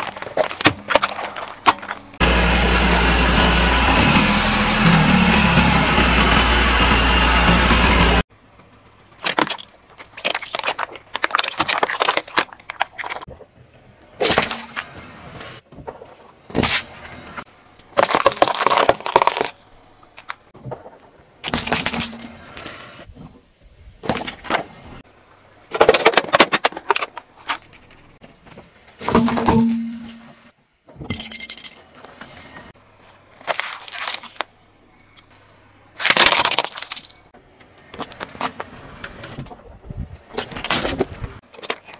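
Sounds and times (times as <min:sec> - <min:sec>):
tyre crushing plastic: 0:00.0 - 0:02.2, 0:09.2 - 0:13.3, 0:17.9 - 0:20.4, 0:25.7 - 0:27.9, 0:33.4 - 0:34.5, 0:36.0 - 0:37.2.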